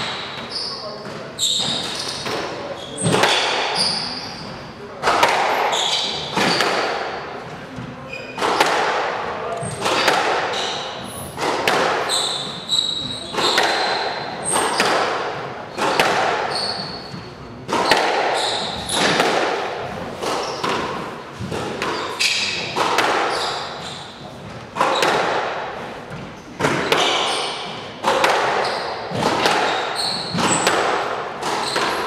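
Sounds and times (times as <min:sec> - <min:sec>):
shoes squeaking on court floor: 0:00.0 - 0:32.0
squash ball cracks: 0:05.0 - 0:05.8, 0:06.4 - 0:07.2, 0:08.4 - 0:09.2, 0:09.8 - 0:12.1, 0:13.3 - 0:16.5, 0:17.6 - 0:23.5, 0:24.7 - 0:25.7, 0:26.6 - 0:32.0.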